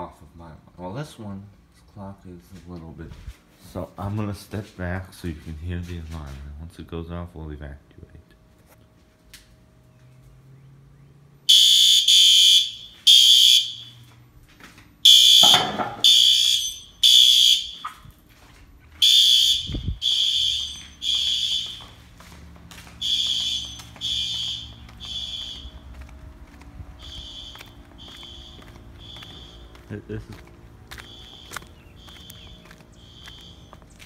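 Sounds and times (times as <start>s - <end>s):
fire alarm beeping: 11.5s - 14.2s, 15.0s - 18.1s, 18.9s - 26.1s, 27.0s - 29.8s, 30.9s - 34.0s.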